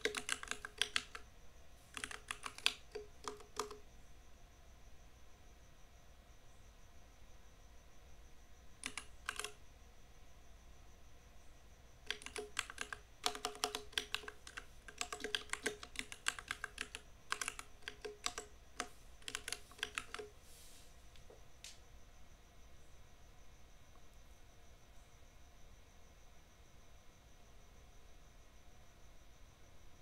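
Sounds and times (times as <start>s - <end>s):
mechanical keyboard typing: 0.0s - 1.2s, 1.9s - 3.8s, 8.8s - 9.6s, 12.0s - 20.3s.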